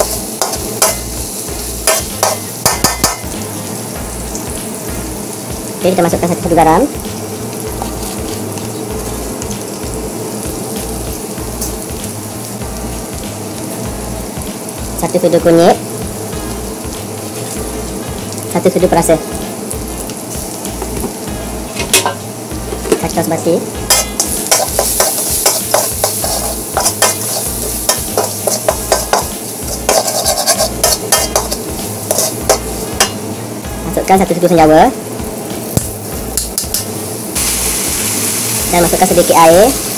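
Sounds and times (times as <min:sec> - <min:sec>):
background music beat: 0:00.0 - 0:39.7
paste sizzling in oil: 0:00.0 - 0:39.9
spatula scraping pan: 0:23.9 - 0:33.2.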